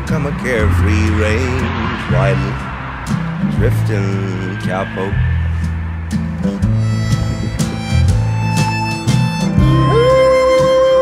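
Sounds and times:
country-western song with guitar: 0.0s - 11.0s.

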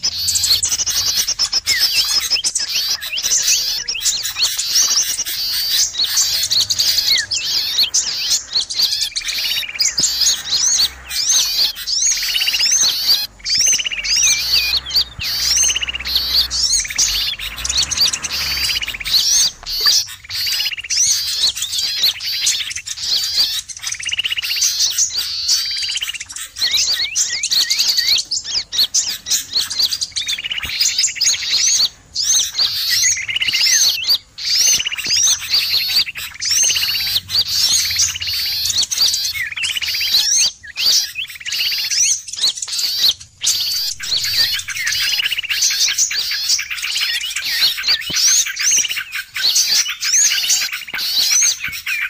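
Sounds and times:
bulbul calls: 0.0s - 52.0s
buzzy rattling bird churrs: 0.0s - 52.0s
songbirds chirping and twittering: 0.0s - 52.0s.

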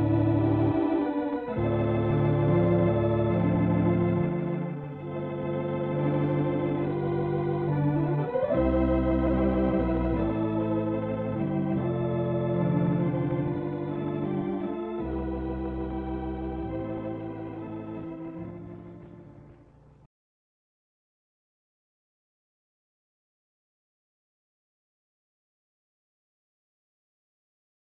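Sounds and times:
organ playing held chords: 0.0s - 20.0s.

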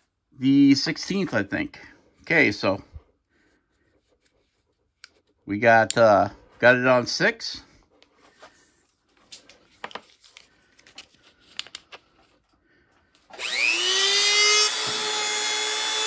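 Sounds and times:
rotary tool motor whine: 13.3s - 16.0s.

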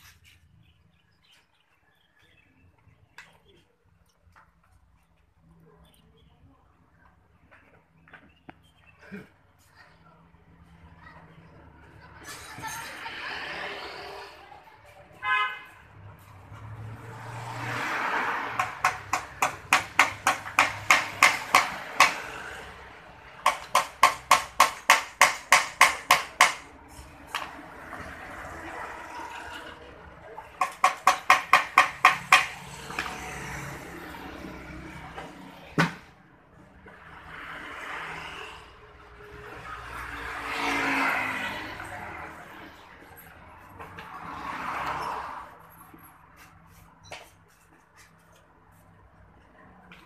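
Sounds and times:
hammer striking metal: 23.4s - 26.7s.

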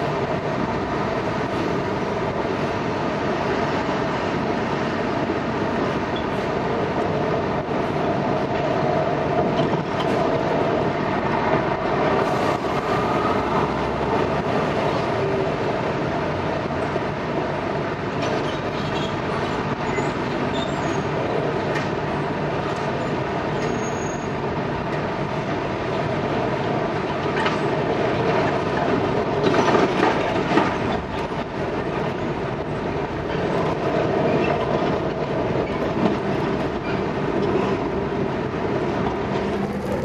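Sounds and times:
boat engine running: 39.5s - 40.0s.

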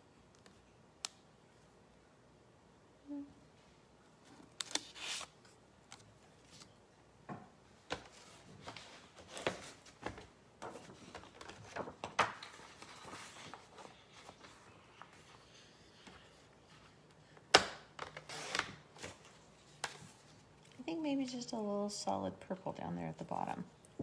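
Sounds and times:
paper rustling: 4.2s - 6.8s, 7.9s - 17.0s.

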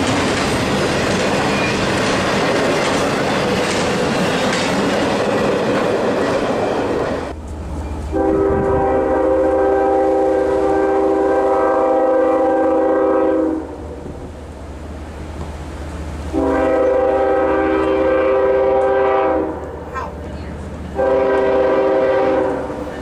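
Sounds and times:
train wheels clattering on rails: 0.0s - 8.8s
locomotive air horn blast: 8.1s - 14.0s, 16.3s - 20.1s, 20.9s - 22.9s.

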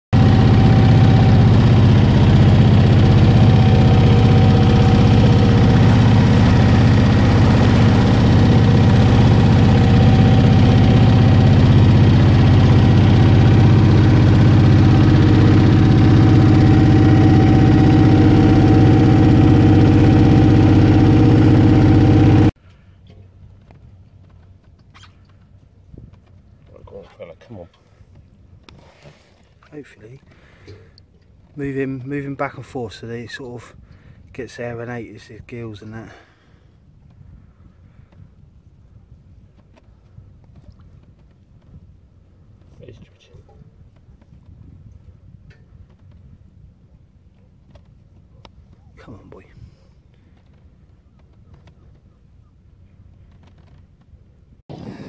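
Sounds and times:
water rushing: 0.2s - 22.5s
boat engine drone: 0.2s - 23.3s, 54.7s - 55.0s.

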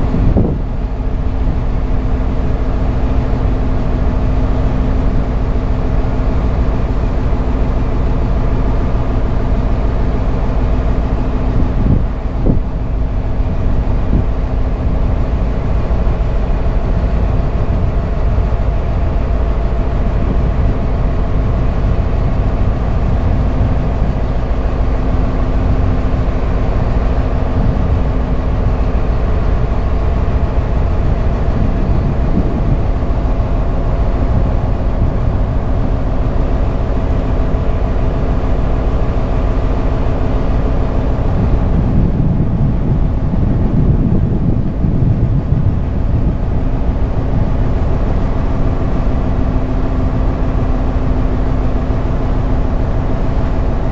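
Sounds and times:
boat engine humming: 0.0s - 53.9s.

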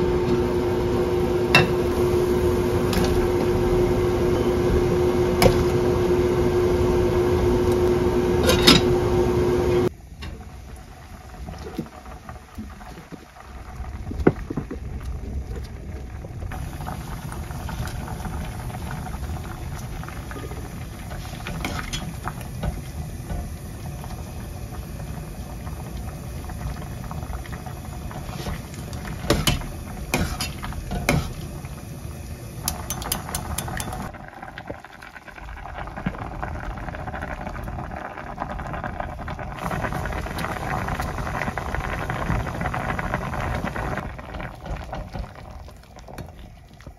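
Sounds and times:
soup boiling in a pot: 0.0s - 46.9s
utensils clinking against pot: 32.6s - 34.1s.

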